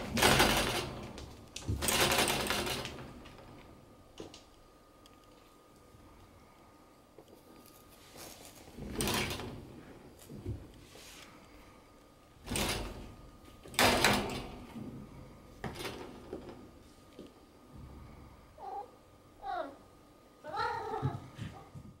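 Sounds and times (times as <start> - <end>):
cat meowing: 20.4 - 21.2.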